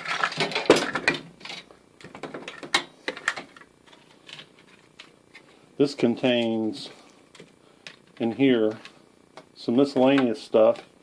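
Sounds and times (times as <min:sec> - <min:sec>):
chargers and cords rustling and clattering: 0:00.0 - 0:11.0.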